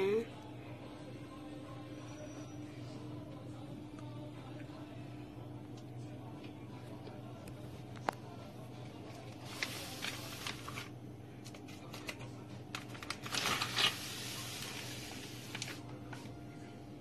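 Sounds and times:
low electrical hum: 0.0s - 17.0s
plastic bag crinkling: 9.1s - 10.9s, 11.6s - 16.2s.

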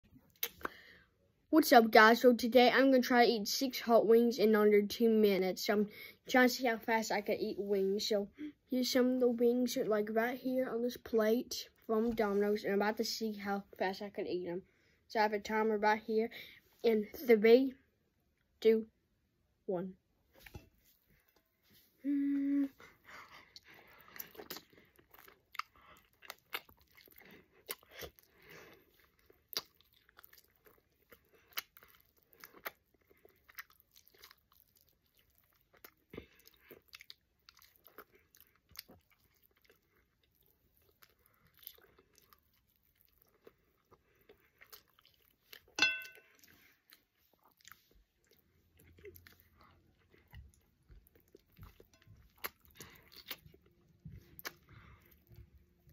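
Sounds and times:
chewing chicken wings: 23.2s - 55.9s.

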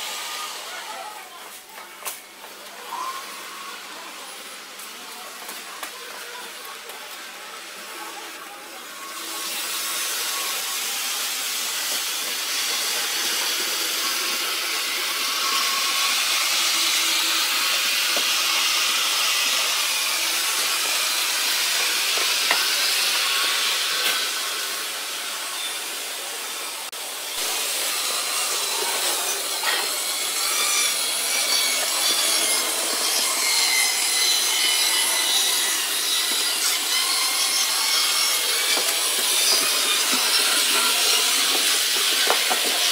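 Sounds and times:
small locomotive motors whining: 0.0s - 42.9s
model train wheels rattling on rail: 28.6s - 42.9s.

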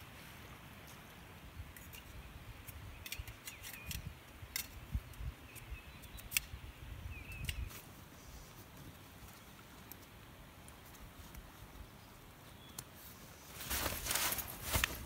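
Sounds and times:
gear clinking on stony ground: 1.7s - 4.8s
small bird chirping: 5.2s - 7.8s.

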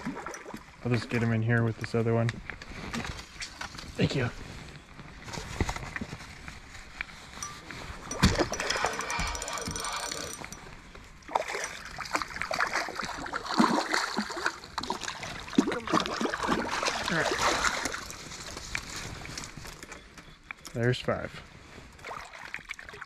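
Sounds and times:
fishing reel ticking: 7.4s - 10.6s
fish splashing in water: 11.3s - 18.6s.

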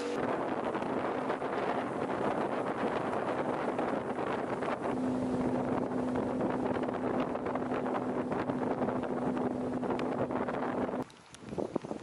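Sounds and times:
boat motor running: 0.0s - 11.0s
wind rushing over microphone: 0.0s - 12.0s.

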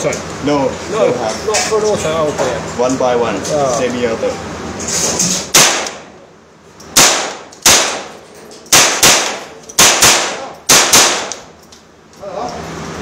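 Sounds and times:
rifle gunshots with echo: 5.5s - 6.1s, 7.0s - 11.5s.

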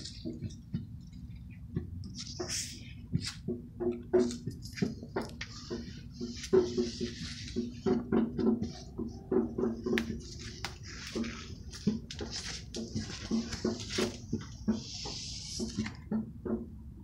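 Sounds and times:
large leaves rustling: 9.6s - 14.4s.

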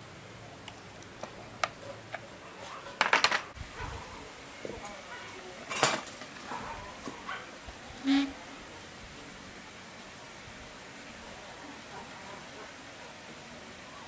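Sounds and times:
metal tools clinking and rattling: 2.6s - 3.6s.

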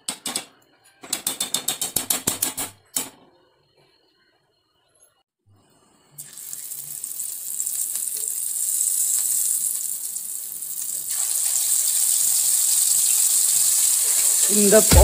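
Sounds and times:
hot oil sizzling: 6.2s - 15.0s.

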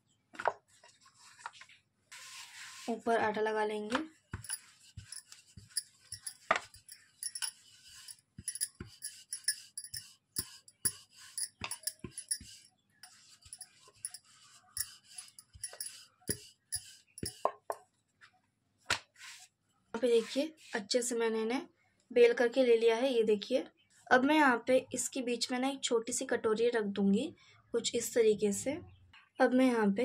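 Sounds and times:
bangles jingling: 4.4s - 17.4s.

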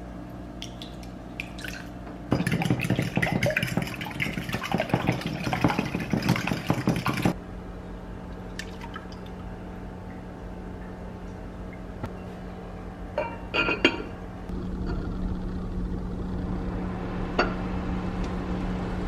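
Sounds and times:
low steady hum: 0.0s - 19.0s
liquid pouring into pot: 1.5s - 7.4s
eggs whisked in glass bowl: 2.3s - 7.4s.

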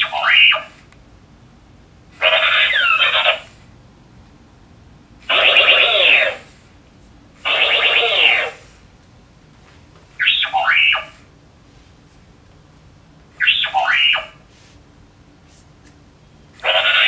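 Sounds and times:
toy robot sound effects: 0.0s - 0.7s, 2.2s - 3.5s, 5.2s - 6.5s, 7.4s - 8.7s, 10.2s - 11.1s, 13.4s - 14.4s, 16.6s - 17.0s.

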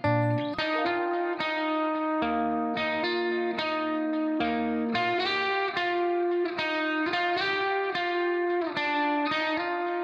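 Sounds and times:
instrumental music with ringing notes: 0.0s - 7.5s.

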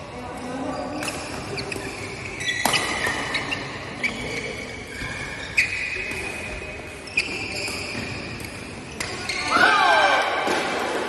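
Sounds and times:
rackets hitting shuttlecock: 1.0s - 3.5s.

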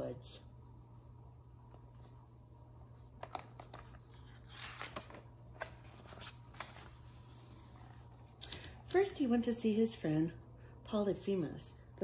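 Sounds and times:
faint low hum: 0.0s - 12.0s
paper page rustling: 3.2s - 8.1s.

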